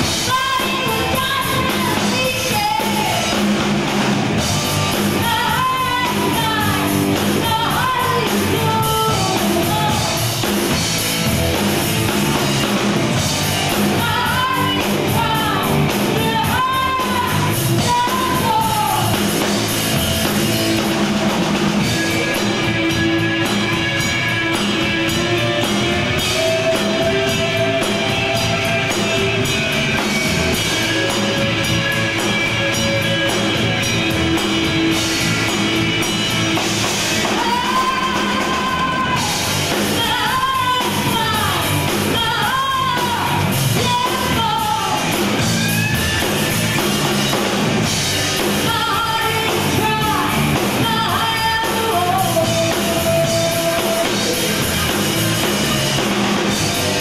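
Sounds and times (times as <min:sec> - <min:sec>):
person singing lead vocal: 0:00.0 - 0:03.6, 0:05.0 - 0:10.8, 0:13.7 - 0:19.6, 0:24.6 - 0:33.2, 0:36.6 - 0:47.3, 0:48.2 - 0:57.0
rock band playing: 0:00.0 - 0:57.0.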